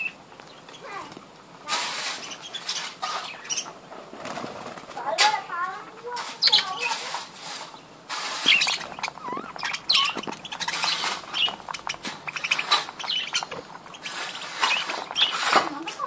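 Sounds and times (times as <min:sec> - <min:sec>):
budgerigars chirping: 0:00.0 - 0:00.9, 0:01.7 - 0:03.8, 0:05.8 - 0:16.0
clicks and rustles: 0:04.3 - 0:16.0.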